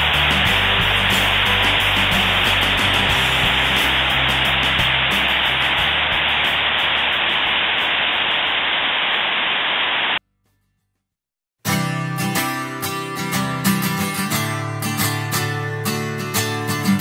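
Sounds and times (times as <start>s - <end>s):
acoustic guitar music: 0.0s - 7.3s, 11.6s - 17.0s
stream rushing over rocks: 0.0s - 10.1s.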